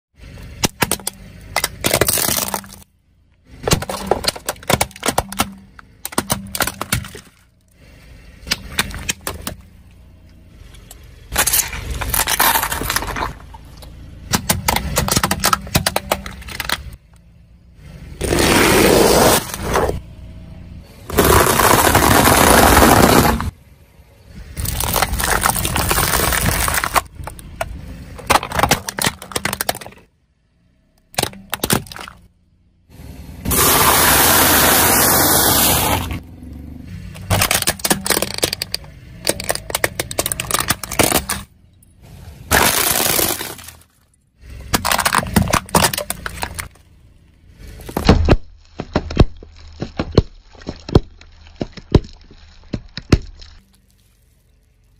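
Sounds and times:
plastic crackling under car tyre: 0:21.1 - 0:23.5, 0:24.6 - 0:30.1, 0:37.1 - 0:41.6, 0:42.5 - 0:54.9.

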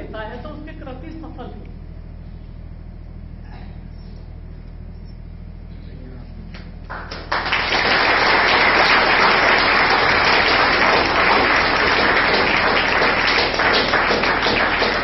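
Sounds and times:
audience applause: 0:06.9 - 0:15.0.

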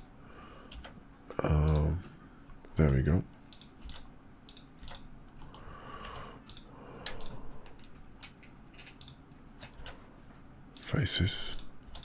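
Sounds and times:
keyboard keystrokes: 0:02.8 - 0:10.0, 0:11.5 - 0:12.0.

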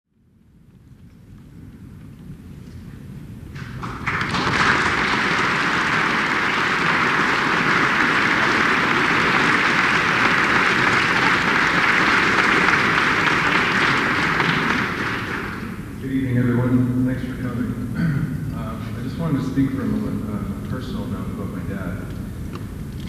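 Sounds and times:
audience applauding: 0:03.6 - 0:16.0.

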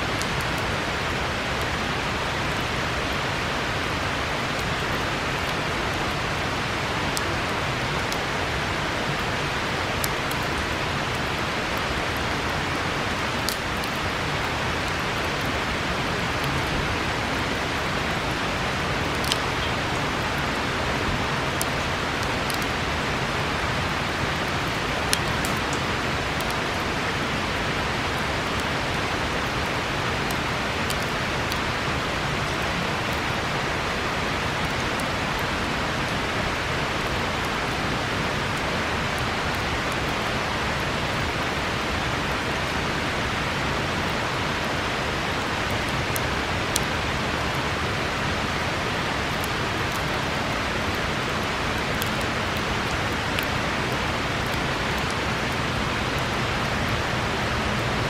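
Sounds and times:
river rushing: 0:00.0 - 0:58.0.

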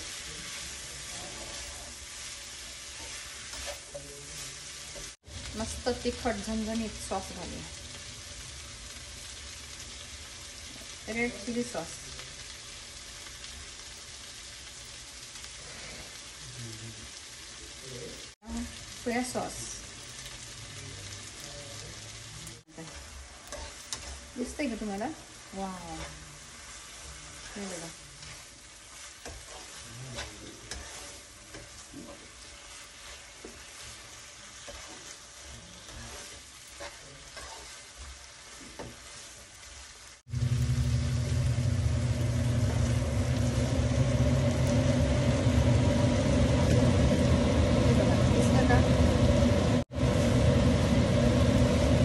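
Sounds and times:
spatula scraping a pan: 0:00.0 - 0:05.2, 0:22.7 - 0:40.2
vegetables sizzling in a wok: 0:00.0 - 0:52.0.

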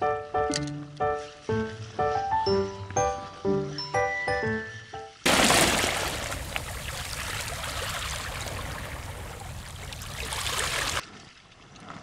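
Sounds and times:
faint water trickling: 0:05.2 - 0:11.9
sea water washing over rocks: 0:05.3 - 0:11.0.

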